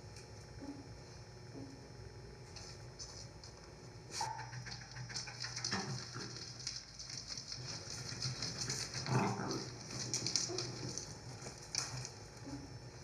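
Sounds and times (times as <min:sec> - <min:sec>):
constant crackling noise: 0:00.0 - 0:13.0.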